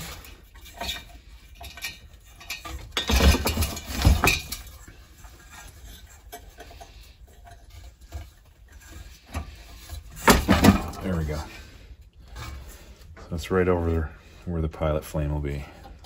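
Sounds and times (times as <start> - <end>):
metal parts clinking and rattling: 0.0 - 11.4.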